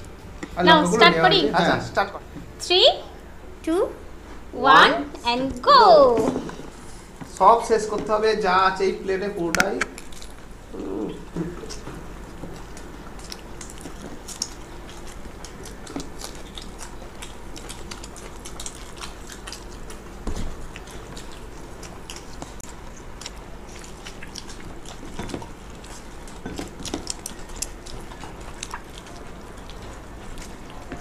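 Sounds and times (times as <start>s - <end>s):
steady low hum: 0.0s - 31.0s
chewing and mouth noises: 9.8s - 31.0s.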